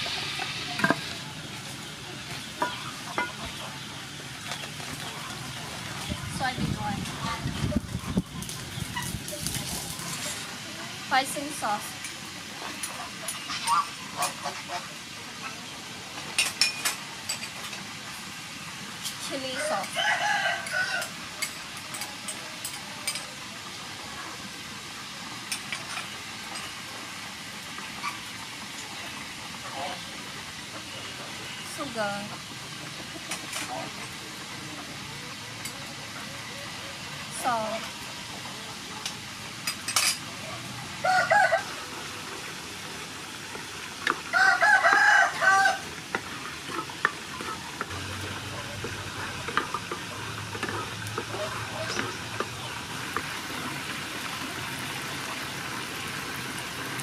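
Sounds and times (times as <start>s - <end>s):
sauce sizzling in hot oil: 0.0s - 57.0s
chicken calling: 41.0s - 42.0s, 44.3s - 45.9s.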